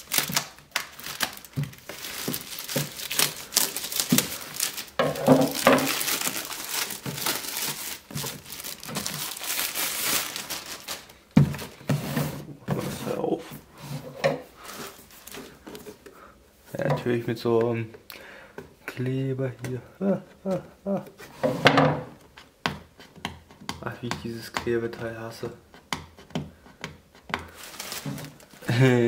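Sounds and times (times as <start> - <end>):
plastic wrap crinkling and tearing: 0.0 - 11.8, 14.6 - 15.6, 27.5 - 29.0.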